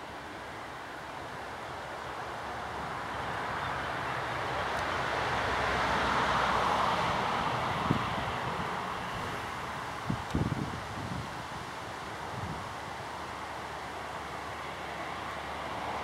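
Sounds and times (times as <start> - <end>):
wind thumps on microphone: 10.0 - 11.3.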